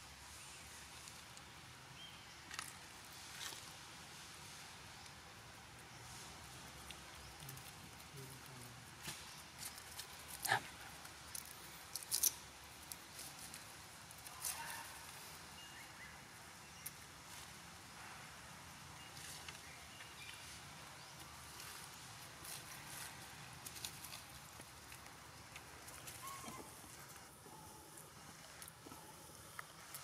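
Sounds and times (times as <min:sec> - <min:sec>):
dry leaves crackling: 0:19.1 - 0:30.0.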